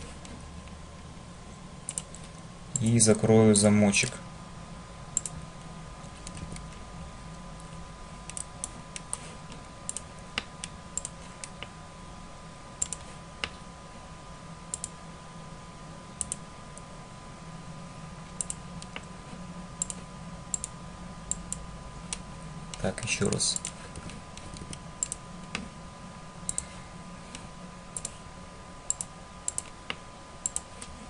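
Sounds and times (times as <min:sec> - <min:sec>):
faint steady hum: 0:00.0 - 0:31.0
computer mouse and keyboard clicks: 0:01.9 - 0:02.9, 0:06.0 - 0:06.8, 0:08.3 - 0:11.7, 0:12.8 - 0:13.6, 0:19.8 - 0:20.7, 0:23.3 - 0:25.6, 0:28.0 - 0:28.2, 0:28.9 - 0:31.0.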